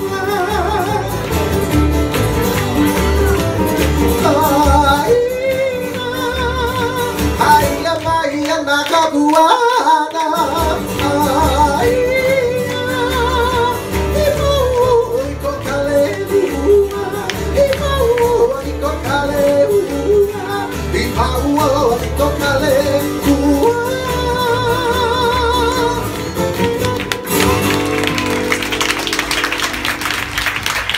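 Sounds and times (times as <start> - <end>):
person singing with vibrato: 0.0 - 1.5, 2.9 - 26.4
strummed acoustic guitars: 0.0 - 30.9
audience applause: 0.5 - 5.2, 26.4 - 30.9.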